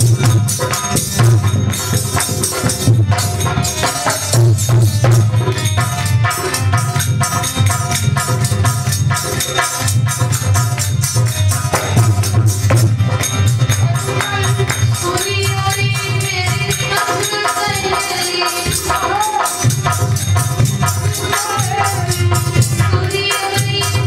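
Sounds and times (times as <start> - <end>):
drum percussion beat: 0.0 - 24.0
woman singing: 13.8 - 19.4, 21.3 - 24.0.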